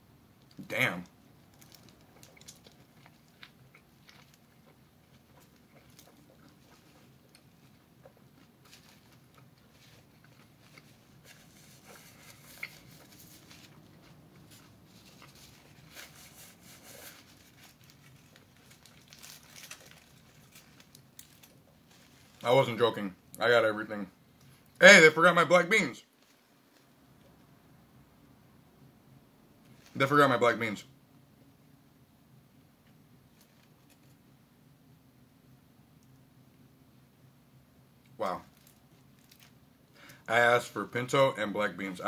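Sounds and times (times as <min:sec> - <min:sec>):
man chewing food: 0:01.4 - 0:22.4
foil wrapper crinkling: 0:01.5 - 0:04.5, 0:08.4 - 0:22.6, 0:38.5 - 0:40.2.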